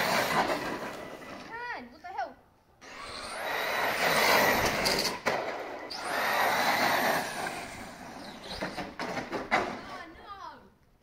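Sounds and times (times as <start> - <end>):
tyre noise on asphalt: 0.0 - 1.6
electric motor whine: 2.8 - 5.1.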